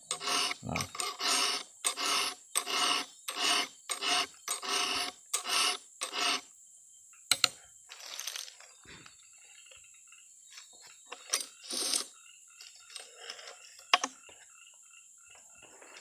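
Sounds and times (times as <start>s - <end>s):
file rasping on chainsaw chain: 0.0s - 6.5s.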